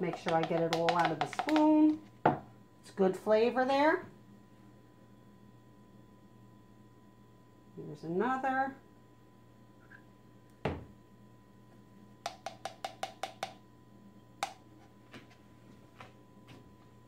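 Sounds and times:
spoon tapping plastic cup rim: 0.0 - 2.0, 12.2 - 13.6.

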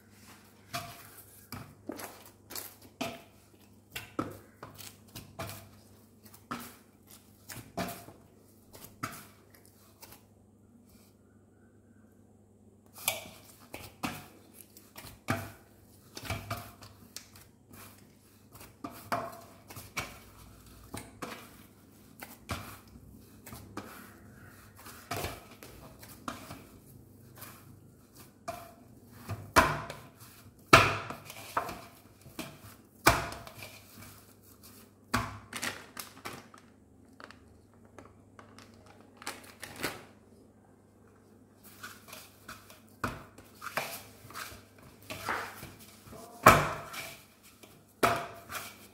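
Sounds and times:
dough thudding on steel: 30.7 - 31.8.

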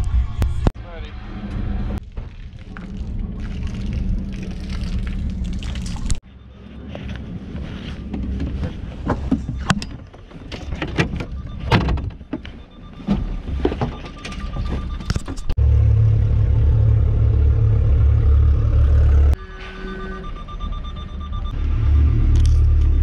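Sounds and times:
low rumble: 0.0 - 9.6, 15.5 - 23.0
vehicle engine humming: 0.0 - 13.5, 15.4 - 23.0.

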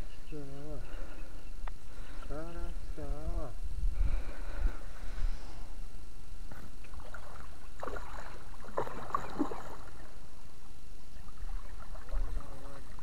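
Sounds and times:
wind rumble on microphone: 1.5 - 13.0
water splashing: 6.5 - 10.2, 11.2 - 13.0.

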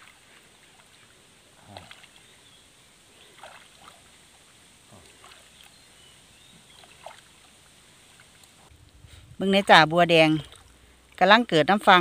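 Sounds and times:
small water splashes: 0.0 - 2.5, 3.1 - 8.7, 10.4 - 11.2
pond water sloshing: 0.0 - 12.0.

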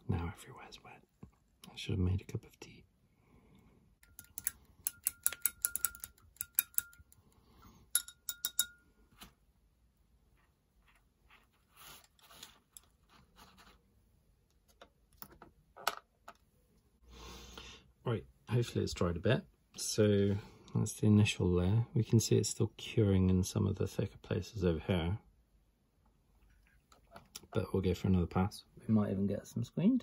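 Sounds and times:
painting tools clicking and clinking: 4.0 - 9.3, 10.9 - 13.2
soft rustling: 10.2 - 14.5.

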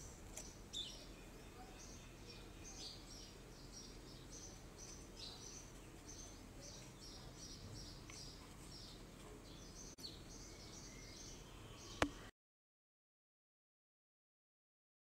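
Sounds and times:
small birds chirping: 0.0 - 12.3.

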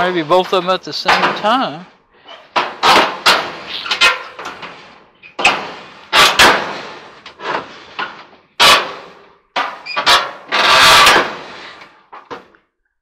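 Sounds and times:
sheet metal clanks and knocks: 0.0 - 4.8, 5.4 - 11.4.

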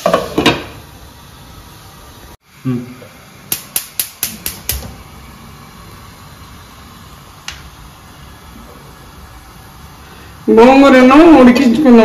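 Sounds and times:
gas burner hiss: 0.0 - 12.0
gas stove igniter ticking: 3.4 - 5.1, 7.4 - 7.8.

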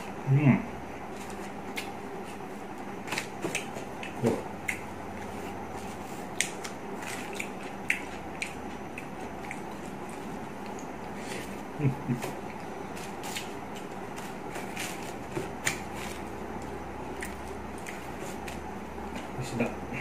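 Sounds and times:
steady background hum: 0.0 - 20.0
chewing smacks: 3.4 - 4.9, 6.4 - 11.2, 17.1 - 18.6.

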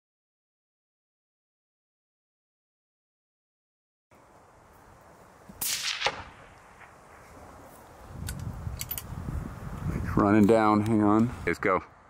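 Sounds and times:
rifle shot: 5.6 - 7.5.

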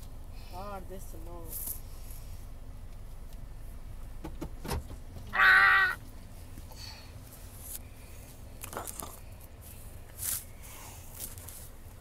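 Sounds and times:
child squealing: 5.3 - 6.0.

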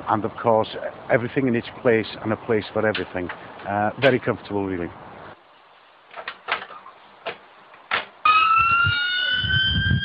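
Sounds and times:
ambulance siren wailing: 8.2 - 10.0.

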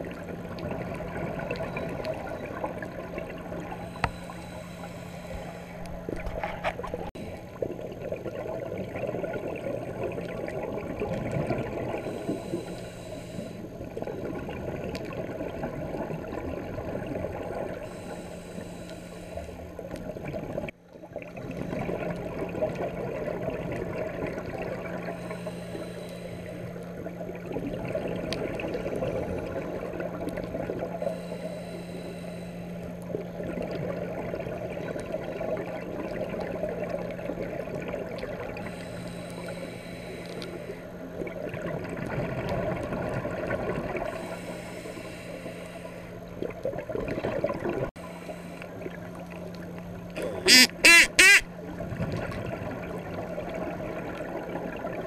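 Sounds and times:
steady low hum: 0.0 - 51.8
diver breathing through regulator: 3.7 - 7.5, 11.9 - 13.7, 17.8 - 19.7, 25.0 - 26.8, 31.0 - 32.8, 38.6 - 40.9, 44.1 - 46.3, 50.2 - 51.5
bubbling rumble: 5.4 - 12.2, 13.7 - 17.9, 20.0 - 25.2, 26.9 - 31.0, 46.2 - 47.9.

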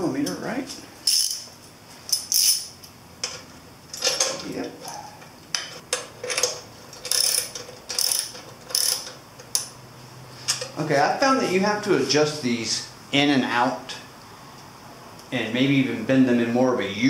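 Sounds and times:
ratchet wrench clicking: 1.0 - 1.5, 2.1 - 2.8, 5.9 - 9.7.

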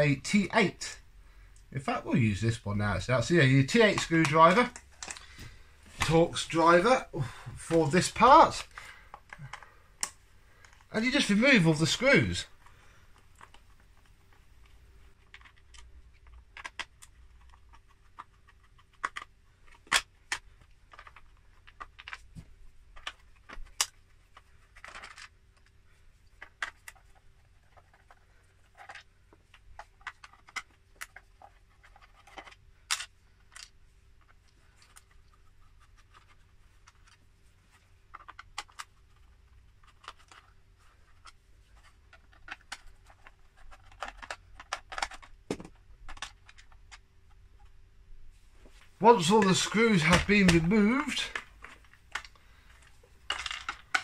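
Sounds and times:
screws and tool handled: 38.1 - 47.0, 49.0 - 54.0.

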